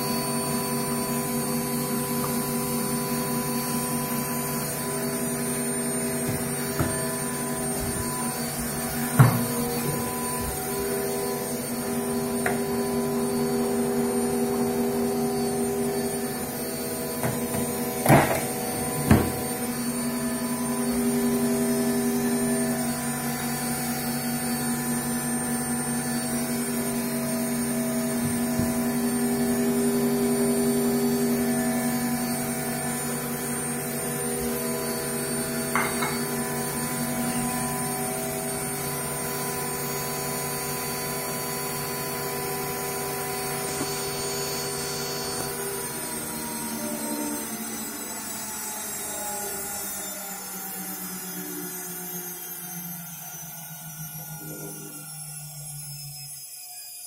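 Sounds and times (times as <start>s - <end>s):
washing machine humming: 0.0s - 49.0s
sharp knocks: 6.2s - 7.2s, 9.1s - 10.1s.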